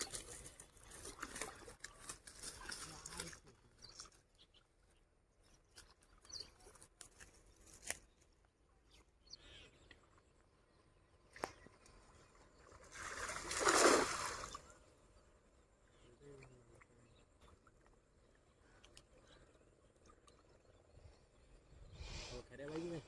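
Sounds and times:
shallow water sloshing and splashing: 0.0 - 4.2, 11.2 - 14.7
loud splash: 12.9 - 14.6.

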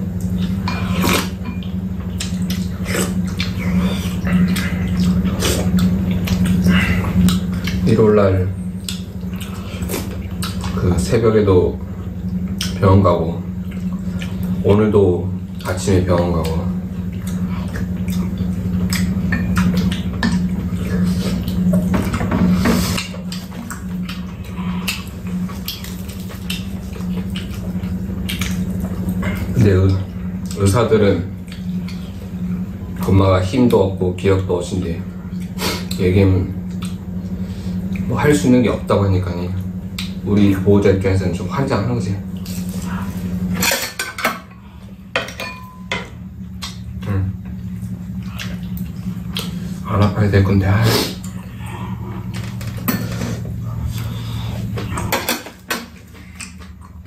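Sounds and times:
steady low hum: 0.0 - 57.0
spoons clinking against ceramic bowls: 45.2 - 46.2
sipping and chewing: 46.5 - 49.9.

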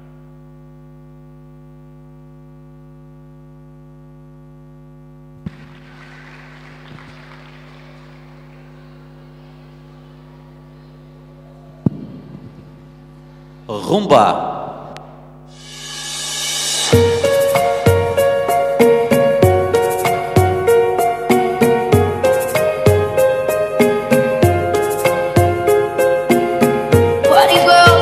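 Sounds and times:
electrical mains hum: 0.0 - 28.0
sharp loud pop: 11.9 - 12.7.

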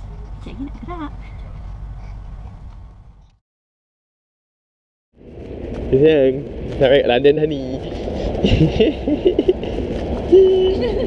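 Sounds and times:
train carriage rumble: 5.3 - 11.0.

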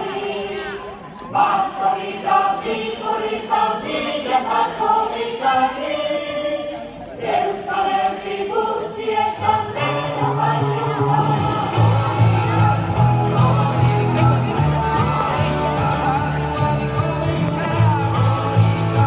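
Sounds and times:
group singing in unison: 0.0 - 19.0
low bass accompaniment: 9.9 - 19.0.

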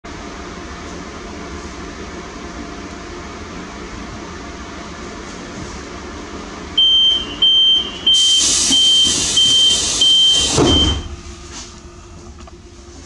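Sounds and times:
high warning beeps: 6.8 - 11.2
air hissing: 8.1 - 11.1
train doors thumping shut: 10.3 - 11.2.

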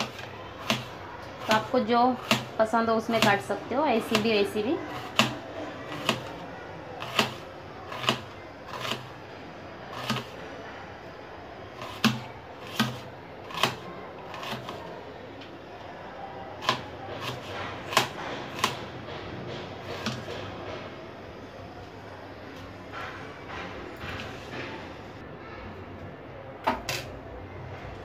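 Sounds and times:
knife tapping cutting board: 5.0 - 5.4.

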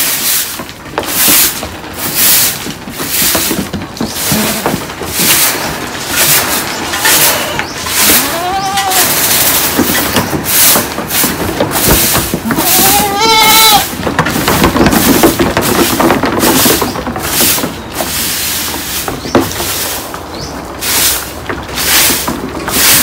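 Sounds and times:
broom swishing over wooden planks: 0.0 - 23.0
goat bleating: 7.2 - 9.3, 12.4 - 13.9.

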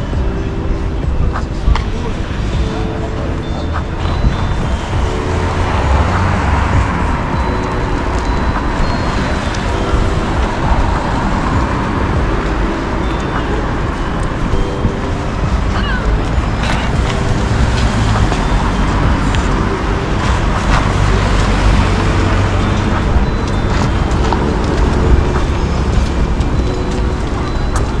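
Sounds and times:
road traffic rumble: 0.0 - 28.0
voices of passers-by: 0.0 - 28.0.

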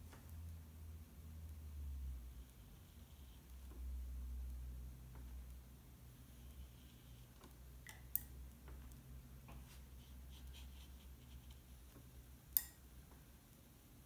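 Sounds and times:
low steady hum: 0.0 - 14.0
brush scratching on paper: 9.6 - 11.9.

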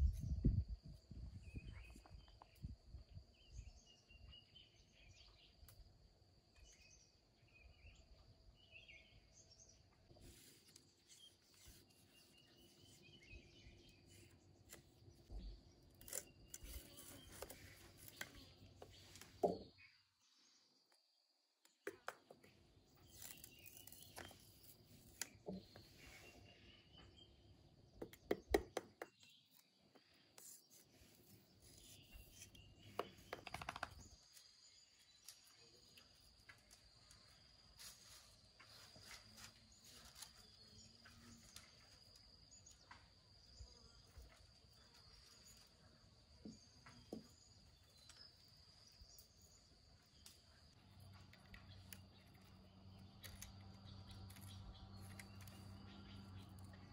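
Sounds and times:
bamboo strips being split: 13.8 - 19.6, 21.7 - 25.8, 50.2 - 56.9.

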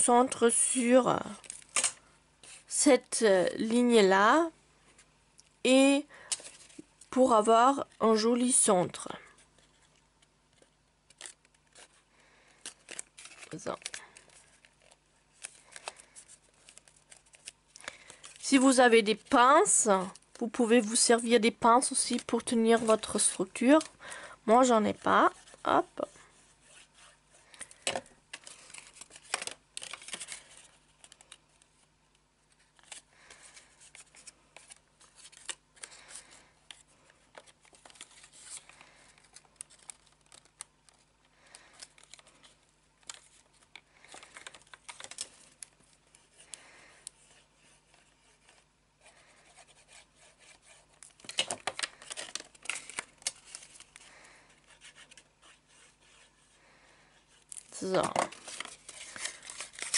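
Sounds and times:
paper rustling and crinkling: 9.4 - 21.2, 24.7 - 31.9, 32.5 - 56.6, 57.2 - 59.9.

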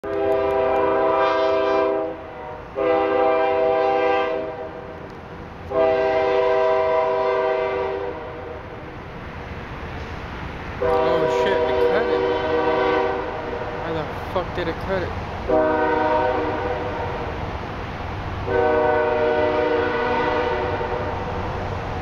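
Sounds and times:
train horn blasts: 0.0 - 5.1, 5.7 - 8.7, 10.8 - 13.8, 15.5 - 17.4, 18.4 - 21.4.

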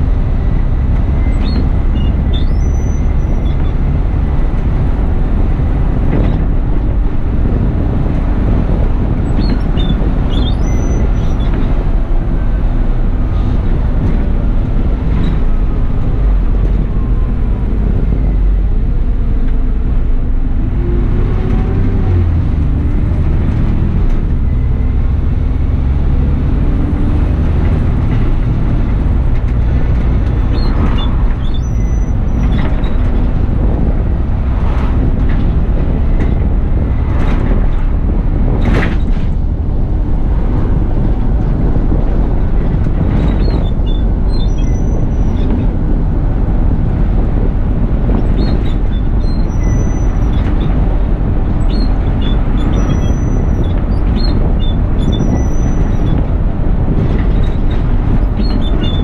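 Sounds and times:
bus engine drone: 0.0 - 59.0.

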